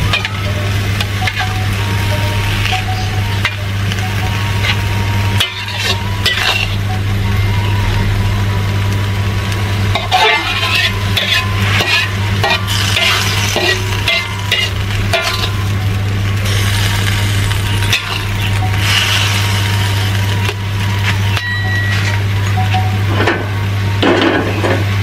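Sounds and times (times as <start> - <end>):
cooking liquid sizzling: 0.0 - 25.0
steady low hum: 0.0 - 25.0
metal utensils scraping a wok: 0.1 - 7.0, 9.9 - 15.8, 16.4 - 23.5.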